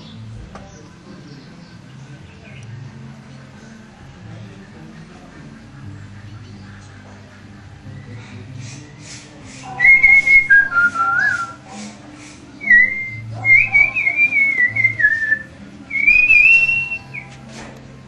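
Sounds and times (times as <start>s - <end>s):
faint song on a stereo: 0.0s - 18.0s
man whistling a melody: 9.8s - 11.6s, 12.6s - 17.3s.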